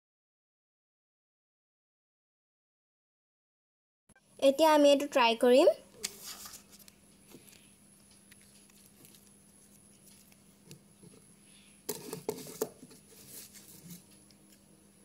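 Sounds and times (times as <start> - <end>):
small scrape: 6.0 - 6.9, 11.9 - 14.1
paper tape rustling and scratching: 6.0 - 7.6, 8.3 - 10.4, 11.9 - 14.2.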